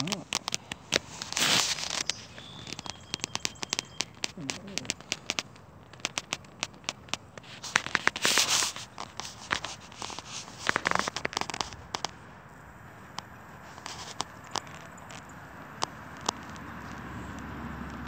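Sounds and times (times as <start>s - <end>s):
clothing rustling: 0.0s - 2.8s
phone handling clicks and crackles: 0.0s - 12.2s.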